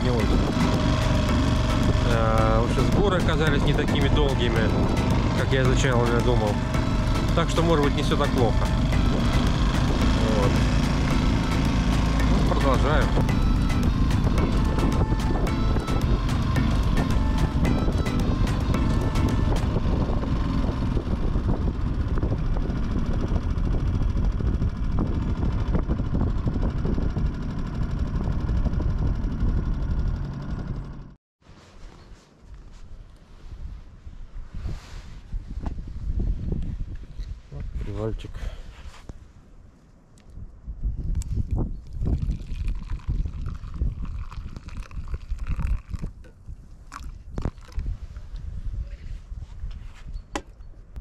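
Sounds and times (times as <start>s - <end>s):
wind buffeting microphone: 0.0s - 30.4s, 33.4s - 51.0s
outboard motor running: 0.0s - 31.2s, 41.9s - 46.1s
river water: 42.2s - 46.0s.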